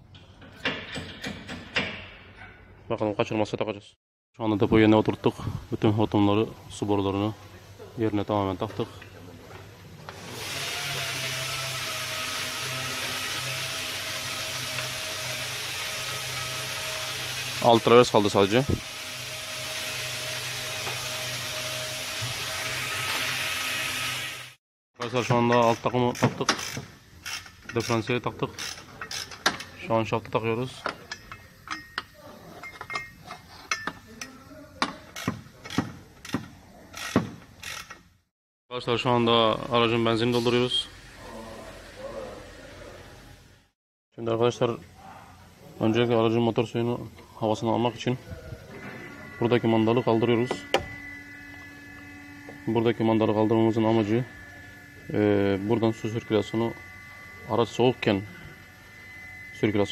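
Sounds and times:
motor-driven machine hissing: 10.1s - 24.6s, 48.0s - 59.9s
metal tools clinking and knocking: 30.8s - 35.3s.

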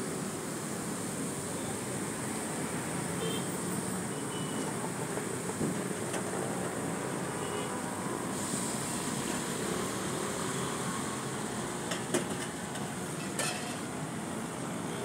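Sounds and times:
food sizzling on a griddle: 8.2s - 14.8s.

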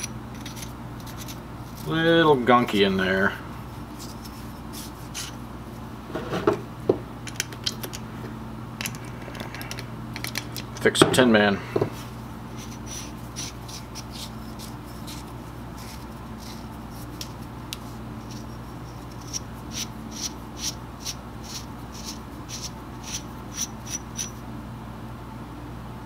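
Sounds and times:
metal thread scraping and clicking: 0.0s - 1.4s, 19.2s - 24.4s
steady low hum: 0.0s - 26.0s.

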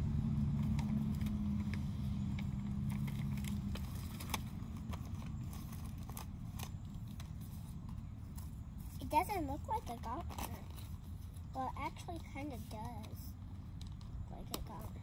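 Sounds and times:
passing vehicle engine hum: 0.0s - 9.0s
plastic packaging crinkling: 0.5s - 15.0s.

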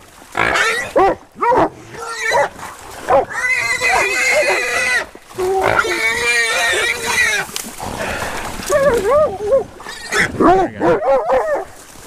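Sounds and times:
hog squealing: 3.3s - 5.0s.

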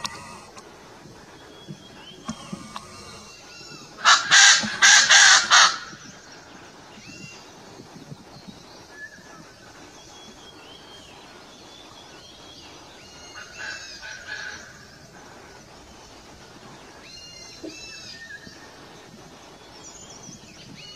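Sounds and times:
pheasant harsh crowing calls: 0.0s - 0.6s, 2.2s - 6.3s
small birds chirping: 0.0s - 20.9s.

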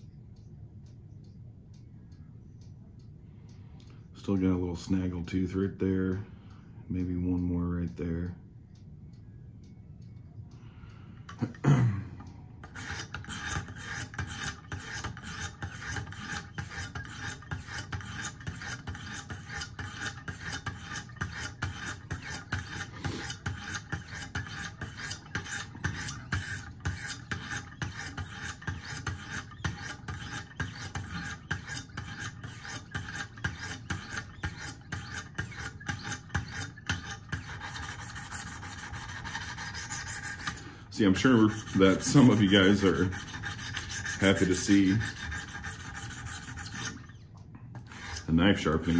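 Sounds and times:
sharpening stones rasping on knife: 12.6s - 47.2s, 47.8s - 48.9s.

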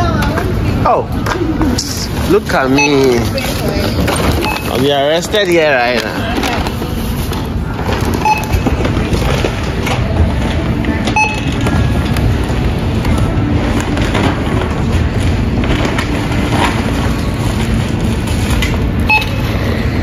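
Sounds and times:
low rumble of store noise: 0.0s - 20.0s
barcode scanner beeping: 2.6s - 5.4s, 8.1s - 9.3s, 11.0s - 12.1s, 19.0s - 20.0s.

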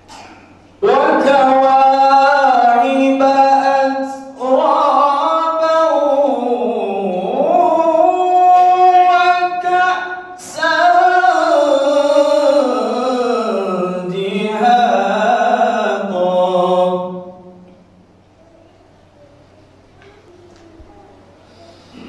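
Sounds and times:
man chanting recitation: 0.8s - 17.6s.

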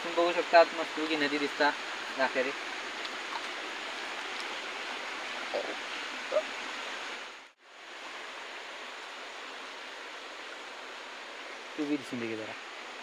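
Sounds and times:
stream running over stones: 0.0s - 13.0s.

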